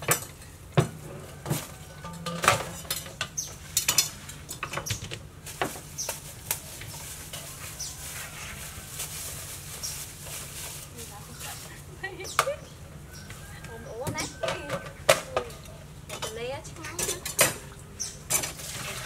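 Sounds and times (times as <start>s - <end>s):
metal basin clattering: 0.0s - 6.2s, 14.0s - 19.0s
bagged food rustling: 5.4s - 11.9s.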